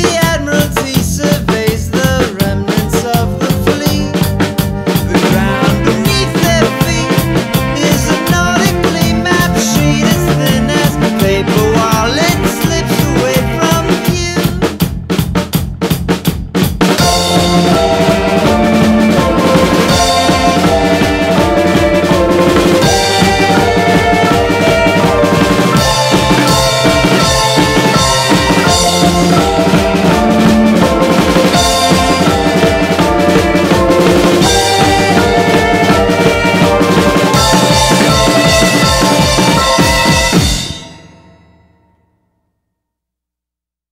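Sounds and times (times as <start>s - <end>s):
band music with drums and bass: 0.0s - 41.1s.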